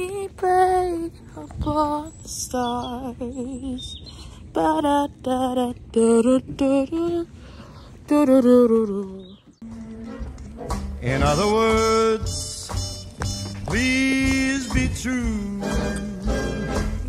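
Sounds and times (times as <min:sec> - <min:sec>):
young woman singing: 0:00.0 - 0:10.2.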